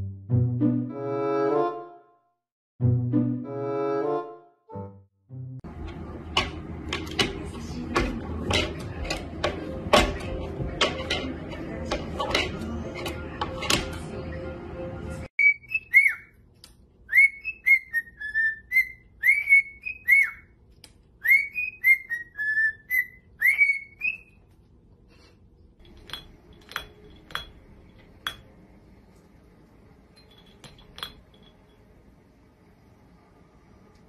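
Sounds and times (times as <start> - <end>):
cockatiel whistling: 15.4 - 16.4, 17.1 - 20.6, 21.2 - 24.4
faint sharp clinks: 30.1 - 32.1.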